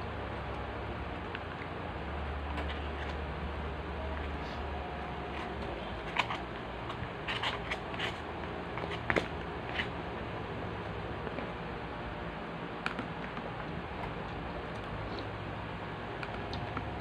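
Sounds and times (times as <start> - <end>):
steady low hum: 0.0 - 17.0
crackles and clicks of food handling: 5.0 - 10.0, 12.7 - 17.0.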